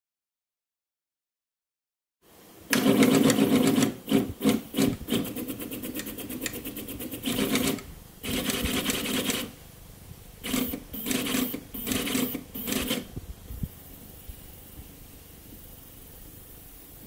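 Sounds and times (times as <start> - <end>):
stepper motors buzzing: 10.4 - 13.1.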